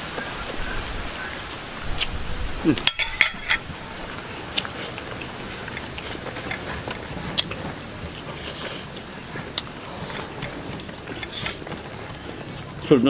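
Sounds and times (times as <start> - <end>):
chewing: 2.8 - 13.0.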